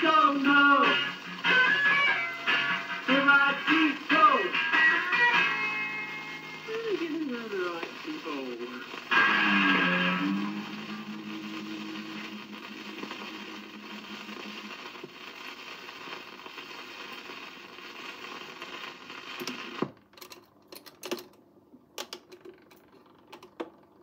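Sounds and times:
record music note: 0.0 - 16.0
stylus surface hiss: 0.0 - 19.8.

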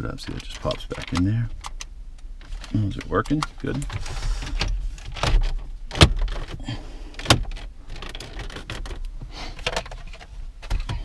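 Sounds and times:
hard plastic trim clicks and knocks: 7.2 - 10.0.

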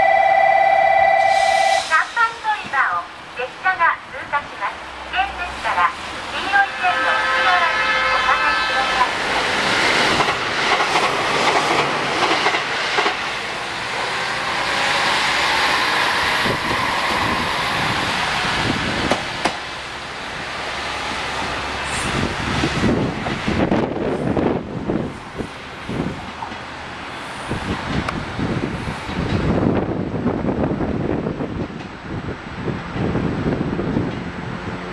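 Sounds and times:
diesel railcar engine under load: 0.0 - 34.9
wheels clacking over rail joints: 9.4 - 14.2.

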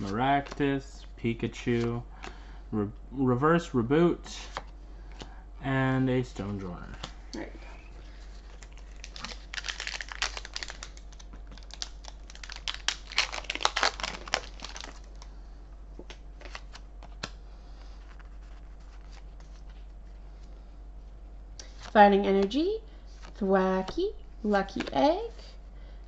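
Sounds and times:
foil wrapper tearing and crinkling: 8.5 - 15.3.

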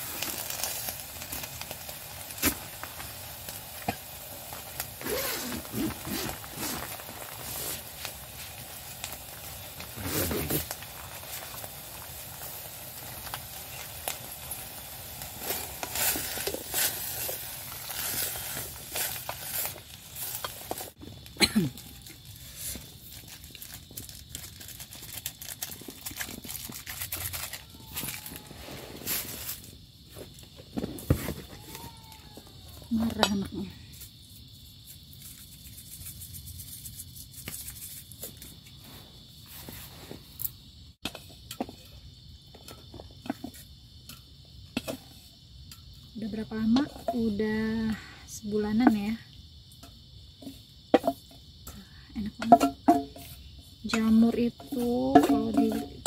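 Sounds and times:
vegetables sizzling in a frying pan: 0.0 - 30.3, 40.0 - 56.0
crickets chirring: 0.0 - 56.0
spatula scraping a pan: 54.6 - 56.0.

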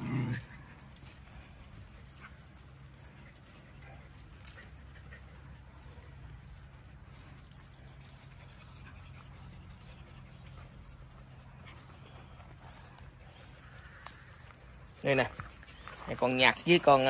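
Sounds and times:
dog panting: 0.6 - 14.0.

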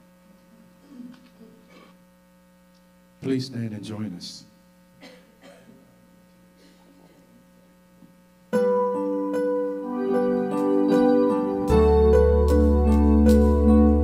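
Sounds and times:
faint hum: 0.0 - 14.0
keyboard chords: 8.5 - 14.0.

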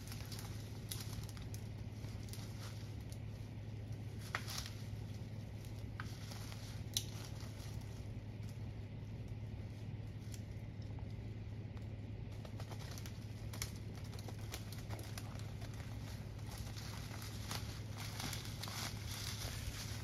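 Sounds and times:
leaves and twigs crackling underfoot: 0.0 - 20.0
sticks snapping: 5.6 - 7.6, 10.2 - 20.0.

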